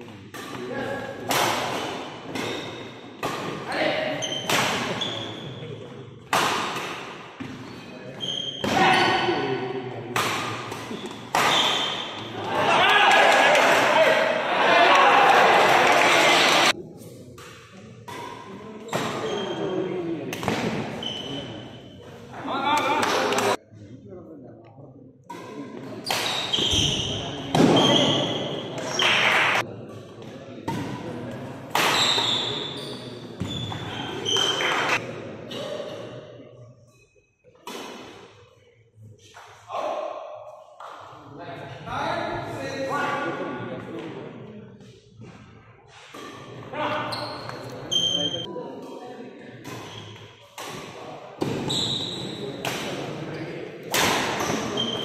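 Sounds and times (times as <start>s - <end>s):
rackets hitting shuttlecock: 0.3s - 3.6s, 4.4s - 5.0s, 6.2s - 7.6s, 10.1s - 12.5s, 25.3s - 28.0s, 28.8s - 32.3s, 49.6s - 53.1s, 53.8s - 55.0s
spectators' voices: 12.2s - 17.0s
shoes squeaking on wooden floor: 51.6s - 52.4s, 54.4s - 55.0s.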